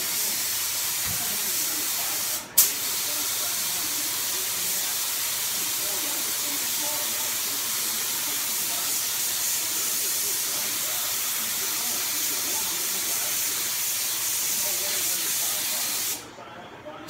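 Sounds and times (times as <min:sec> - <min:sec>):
paint spray gun hissing: 0:04.2 - 0:16.2.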